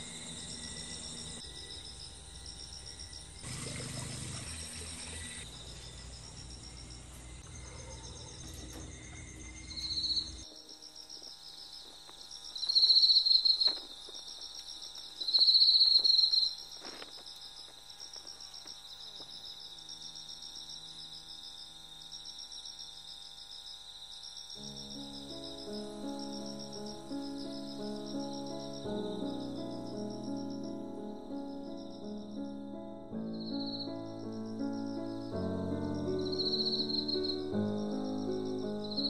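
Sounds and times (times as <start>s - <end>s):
loud insect buzzing calls: 0.0s - 7.4s
crickets chirping: 0.0s - 39.0s.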